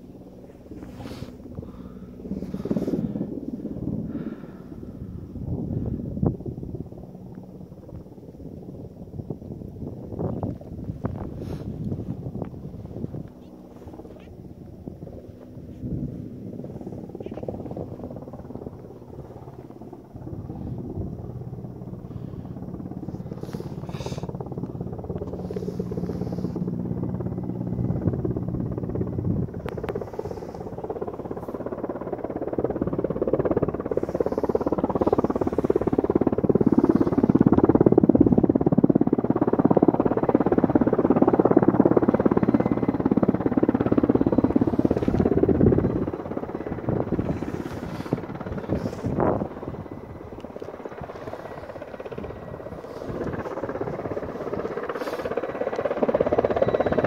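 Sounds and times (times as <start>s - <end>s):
helicopter rotor blade chop: 0.0s - 8.1s, 9.8s - 57.0s
helicopter engine hum: 0.0s - 57.0s.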